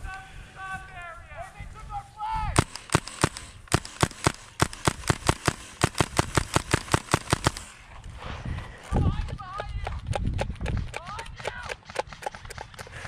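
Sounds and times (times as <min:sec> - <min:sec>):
airsoft rifle shots: 0:02.6 - 0:07.8.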